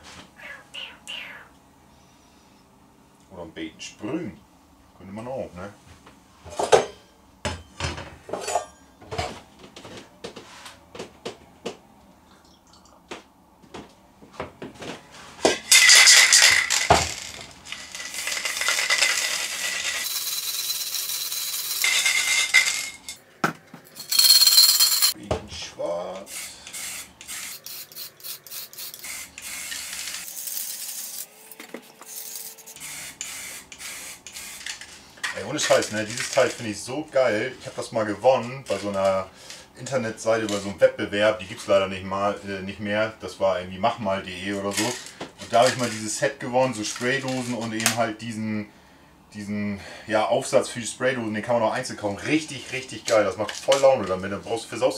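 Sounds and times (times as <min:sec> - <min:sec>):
spray can ball rattling: 0:15.7 - 0:23.1, 0:23.9 - 0:25.2, 0:26.3 - 0:34.9
spray paint hissing: 0:18.0 - 0:22.6, 0:26.2 - 0:31.3, 0:31.9 - 0:34.8.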